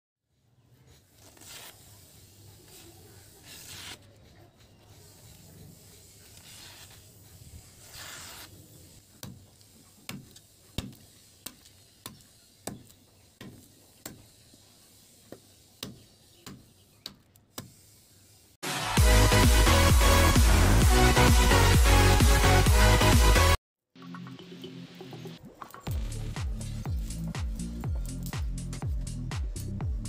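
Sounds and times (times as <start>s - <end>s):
blade swishing through paper: 0.9s - 12.8s.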